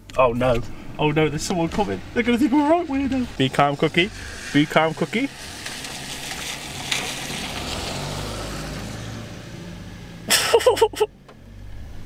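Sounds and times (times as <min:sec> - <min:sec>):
car interior hum and hiss: 0:00.0 - 0:12.0
man laughing: 0:10.3 - 0:11.1.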